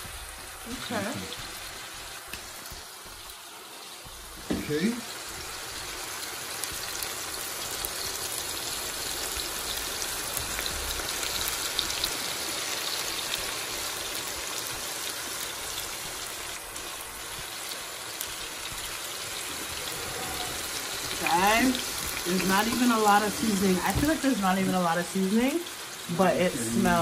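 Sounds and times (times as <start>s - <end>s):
chicken sizzling in a frying pan: 0.0s - 27.0s.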